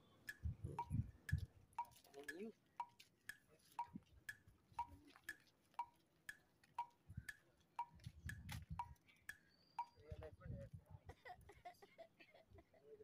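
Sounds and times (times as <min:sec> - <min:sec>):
faint clock ticking: 0:00.2 - 0:10.0.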